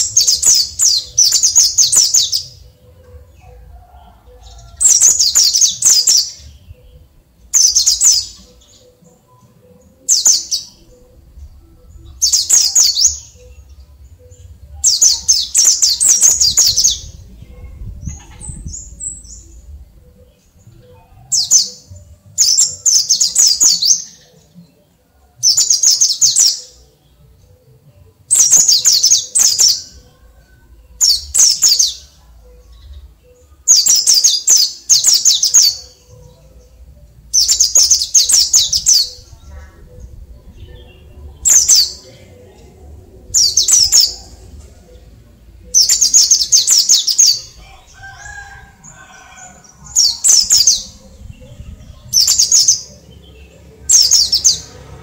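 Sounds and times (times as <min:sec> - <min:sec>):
bird twittering song: 0:00.0 - 0:24.6.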